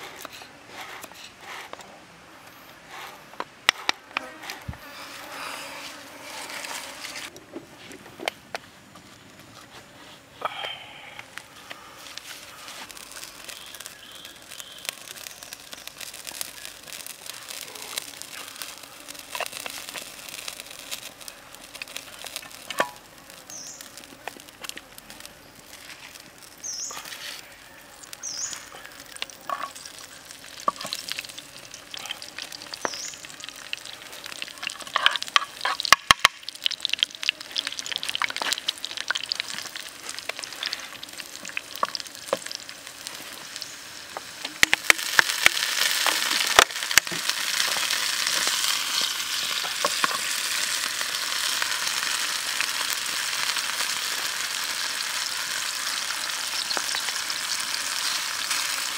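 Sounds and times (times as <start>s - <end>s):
oil sizzling in frying pan: 12.8s - 58.9s.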